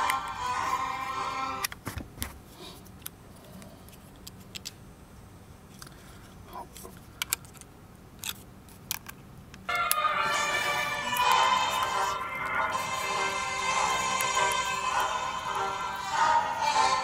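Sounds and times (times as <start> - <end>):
music: 0.0 - 1.7, 9.7 - 17.0.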